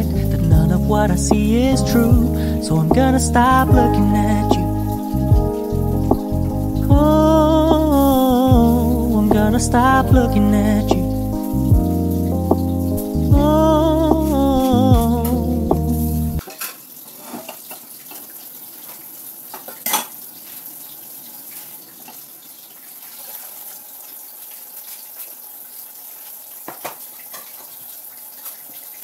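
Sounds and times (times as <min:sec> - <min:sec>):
pop song: 0:00.0 - 0:16.4.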